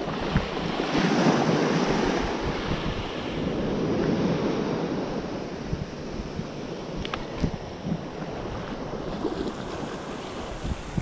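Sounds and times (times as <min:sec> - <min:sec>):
ocean surf washing up beach: 0:00.0 - 0:11.0
wind buffeting microphone: 0:00.0 - 0:11.0.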